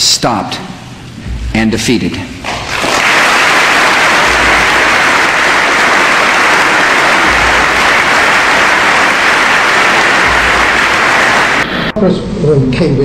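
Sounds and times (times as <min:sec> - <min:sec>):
audience applauding: 0:02.4 - 0:11.9.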